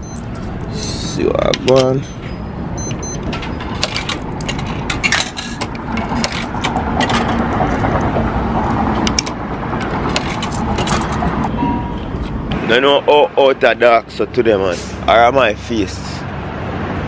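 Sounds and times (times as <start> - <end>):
steady traffic noise: 0.0 - 17.0.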